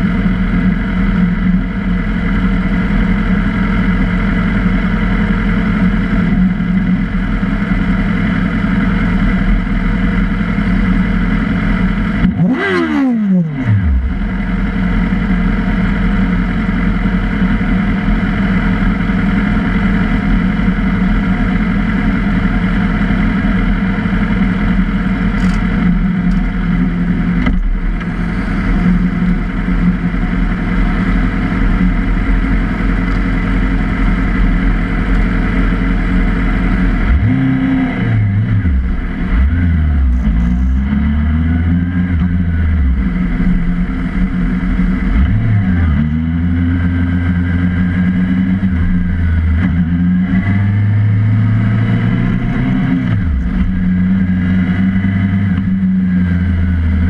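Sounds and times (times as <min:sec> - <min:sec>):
motorcycle engines idling: 0:00.0 - 0:37.1, 0:42.1 - 0:45.9
motorcycle engine revving: 0:00.0 - 0:57.0.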